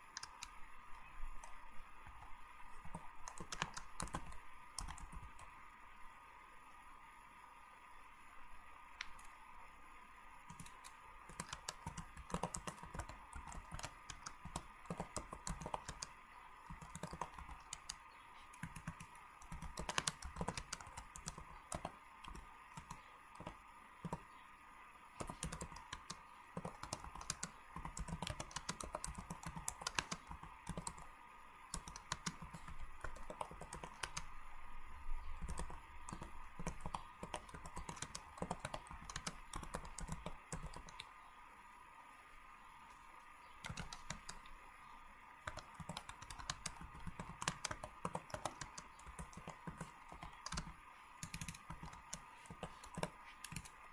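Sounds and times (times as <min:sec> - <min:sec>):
faint steady hum: 0:00.0 - 0:53.9
keyboard key clicks: 0:18.6 - 0:24.2.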